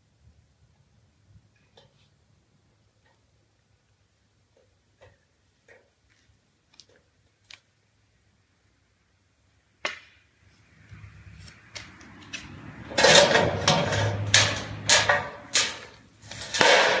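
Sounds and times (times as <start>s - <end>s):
metal clattering on concrete: 11.8s - 17.0s.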